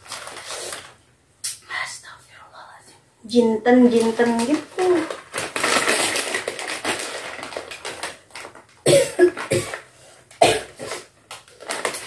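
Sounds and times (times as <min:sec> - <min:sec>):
woman coughing: 0:08.9 - 0:09.8, 0:10.4 - 0:10.7.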